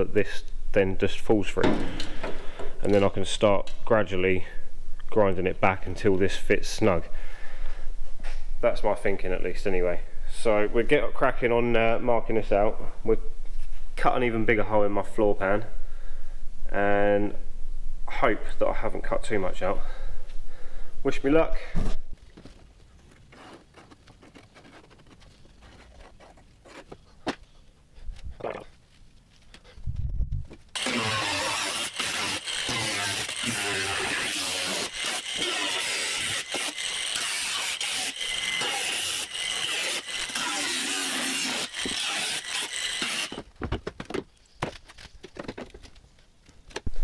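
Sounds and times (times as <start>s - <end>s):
angle grinder grinding steel: 30.8s - 43.4s.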